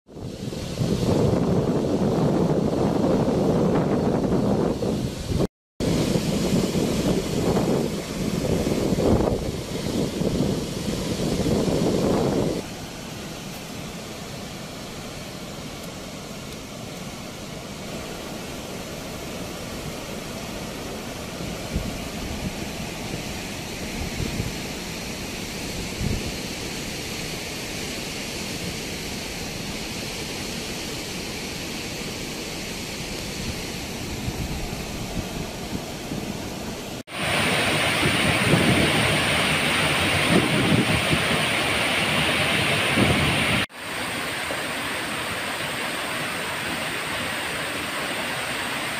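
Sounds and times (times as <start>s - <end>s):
low wind buffeting thumps: 0.1s - 12.6s, 33.6s - 43.8s
wind rushing over microphone: 0.1s - 12.7s, 21.3s - 26.6s, 33.2s - 48.9s.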